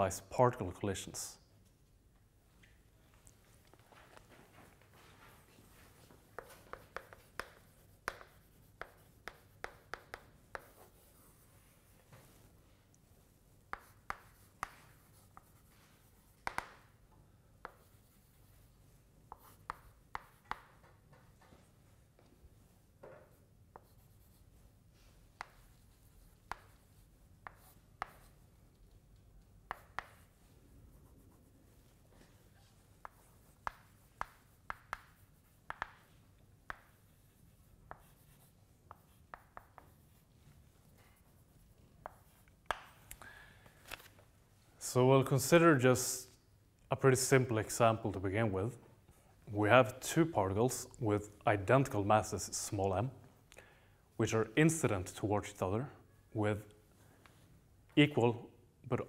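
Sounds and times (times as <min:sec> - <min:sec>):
chalk tapping on a blackboard: 0:06.3 - 0:12.4, 0:13.7 - 0:17.0, 0:17.6 - 0:18.6, 0:19.2 - 0:21.6, 0:23.0 - 0:24.4, 0:25.3 - 0:28.5, 0:29.6 - 0:32.0, 0:32.7 - 0:43.1.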